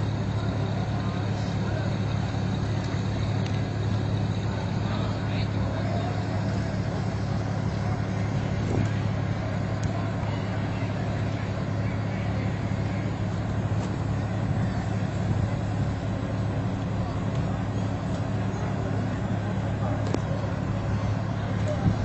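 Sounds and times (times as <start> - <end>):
road noise: 0.0 - 22.0
vehicle engine humming: 0.0 - 22.0.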